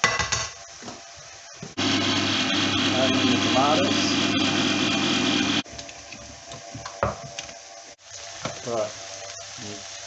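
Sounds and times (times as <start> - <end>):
electric can opener motor: 1.8 - 5.6.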